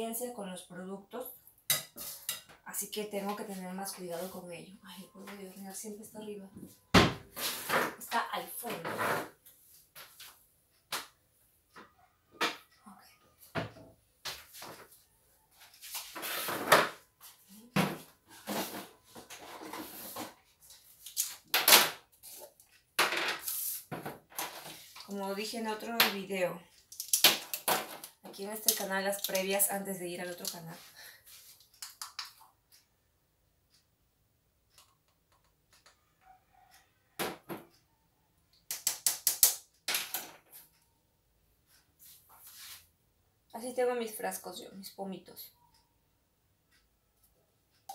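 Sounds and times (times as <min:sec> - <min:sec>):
cupboard door opening and shutting: 0:06.9 - 0:08.0.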